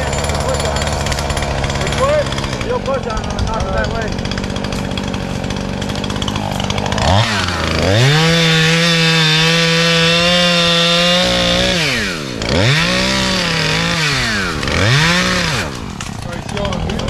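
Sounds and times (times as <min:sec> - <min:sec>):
chainsaw revving and cutting: 0:00.0 - 0:17.0.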